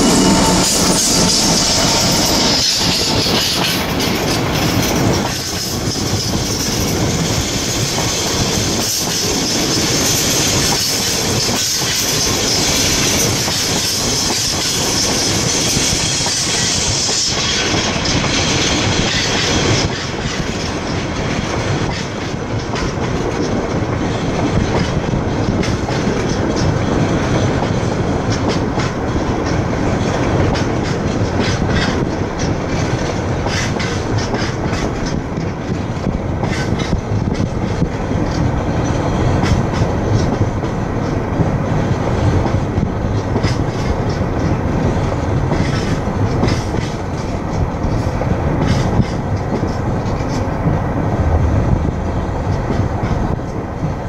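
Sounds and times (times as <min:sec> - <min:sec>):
freight train rumbling: 0:00.0 - 0:54.0
wheels clicking over rail joints: 0:08.6 - 0:51.4.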